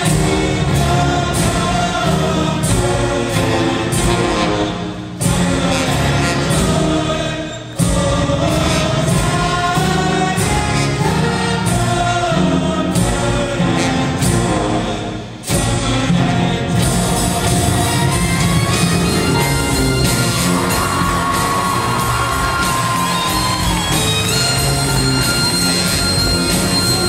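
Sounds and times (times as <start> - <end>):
choir singing: 0.0 - 27.0
loud bass-heavy music: 15.5 - 27.0.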